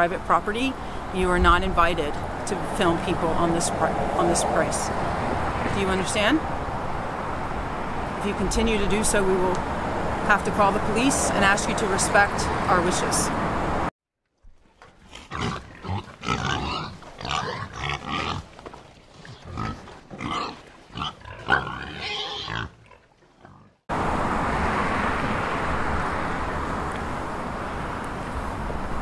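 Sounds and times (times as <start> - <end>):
street traffic noise: 0.0 - 13.9, 23.9 - 29.0
pig calls: 15.1 - 18.4, 19.3 - 23.8.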